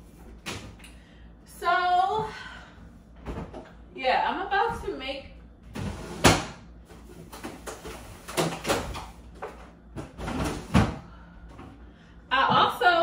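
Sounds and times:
kitchen items knocking and clunking: 5.7 - 11.0.

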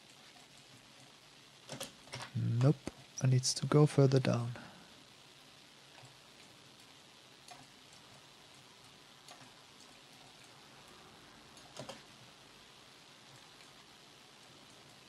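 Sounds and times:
faint steady hiss: 0.0 - 15.0
computer mouse clicks: 1.7 - 2.4, 9.3 - 10.5, 11.6 - 12.1.

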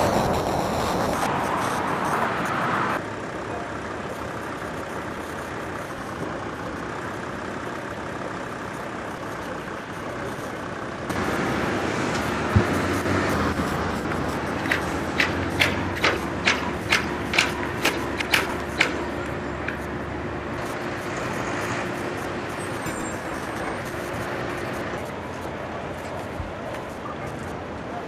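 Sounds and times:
steady rumble: 0.0 - 3.0, 3.9 - 26.6
diesel pump engines humming: 0.0 - 28.0
sharp regular clicks: 11.1 - 22.5.

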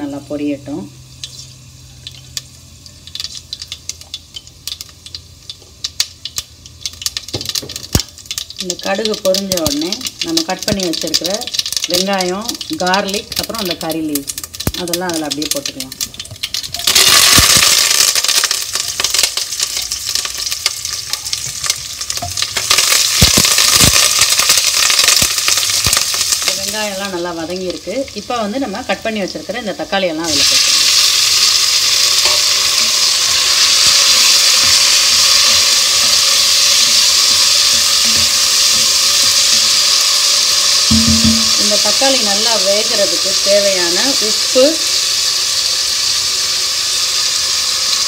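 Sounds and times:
seeds popping in hot oil: 0.0 - 48.0
sharp knocks against pan: 40.9 - 41.6.

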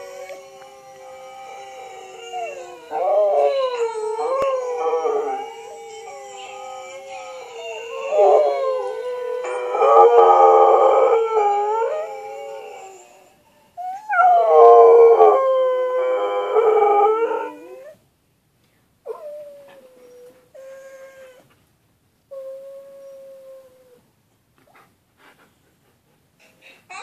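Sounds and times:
dog howling: 0.0 - 18.0.

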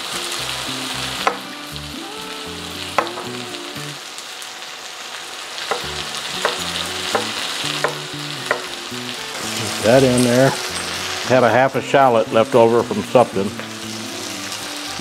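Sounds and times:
vegetables sizzling in oil: 0.0 - 15.0
knife knocking on cutting board: 1.2 - 1.4, 3.0 - 3.4, 5.7 - 8.7.

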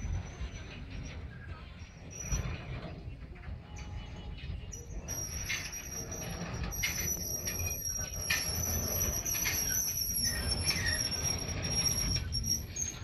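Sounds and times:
high-pitched wheel squeal: 0.0 - 3.1, 3.7 - 13.0
freight cars rolling on steel wheels: 0.0 - 13.0
short squeaks: 0.0 - 13.0.

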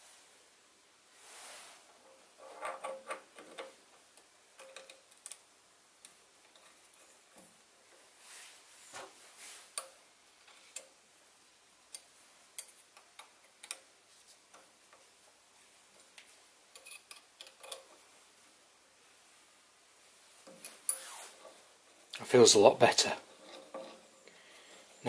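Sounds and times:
small steel parts clicking: 2.1 - 7.5, 9.7 - 11.0, 11.9 - 13.9, 16.2 - 18.0, 23.2 - 25.0.

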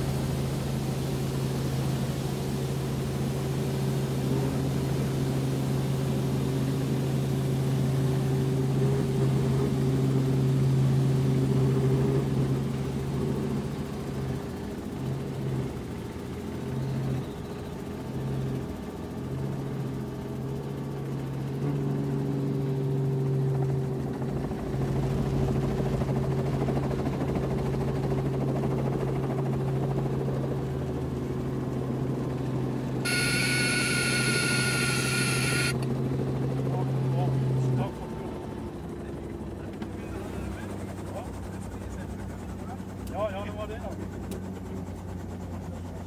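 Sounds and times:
helicopter engine and rotor hum: 0.0 - 46.0
high-pitched tone: 33.1 - 35.8.

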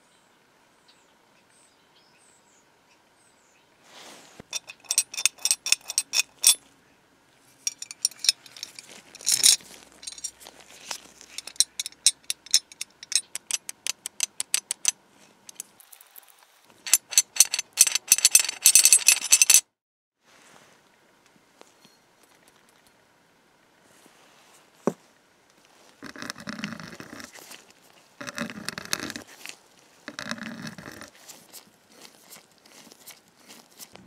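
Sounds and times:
metal latch clicking and snapping: 11.4 - 14.9.

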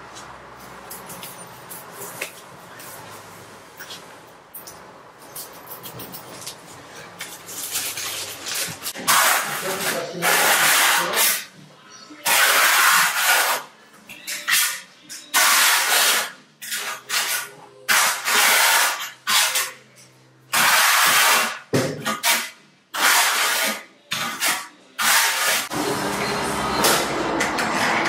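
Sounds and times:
trowel scraping adhesive on tile: 9.0 - 11.5, 12.2 - 13.7, 14.4 - 19.8, 20.5 - 25.7.

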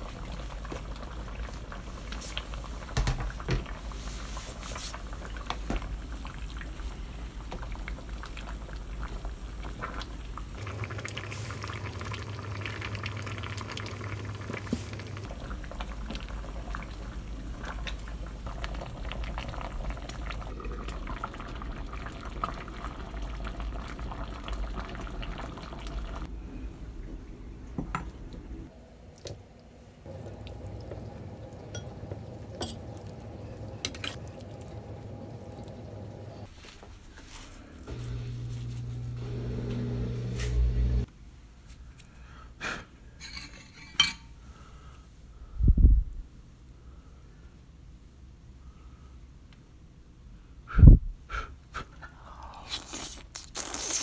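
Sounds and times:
stew bubbling in a pot: 0.0 - 26.3, 29.1 - 36.5.

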